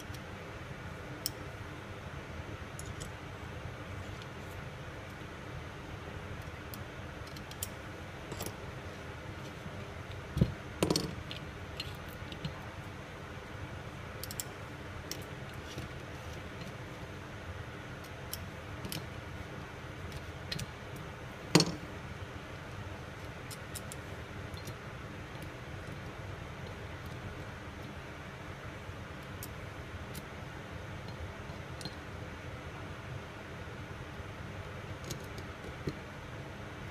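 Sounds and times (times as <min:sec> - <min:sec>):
allen keys clicking on metal: 0:14.2 - 0:15.3.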